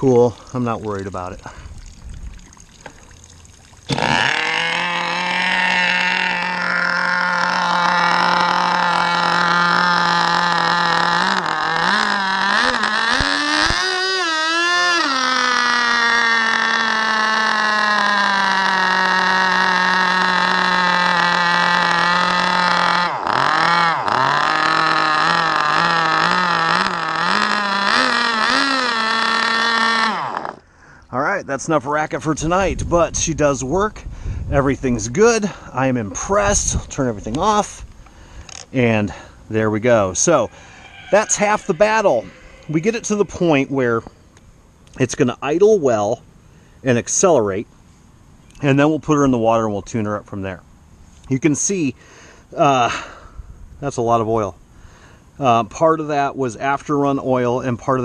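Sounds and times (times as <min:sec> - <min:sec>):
model boat engine high-pitched idle: 0:03.9 - 0:30.7.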